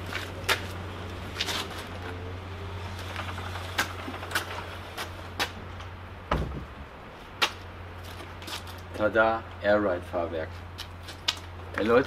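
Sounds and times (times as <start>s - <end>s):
heavy thump: 6.2s - 6.8s.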